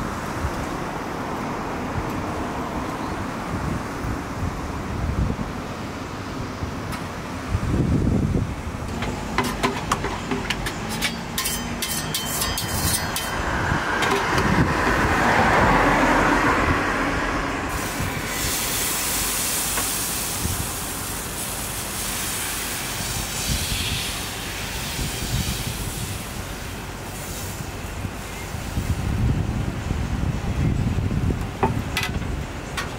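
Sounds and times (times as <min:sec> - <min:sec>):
batter hissing on hot griddle: 0:17.7 - 0:27.7.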